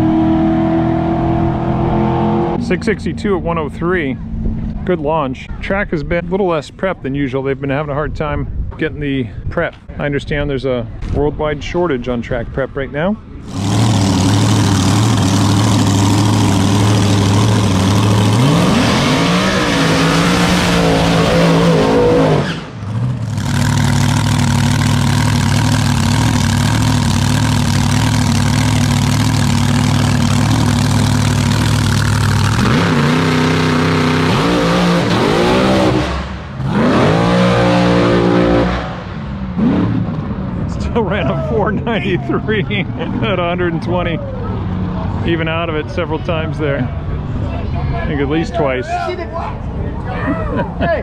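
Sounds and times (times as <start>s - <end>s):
dragster engine revving loudly: 13.5s - 40.1s.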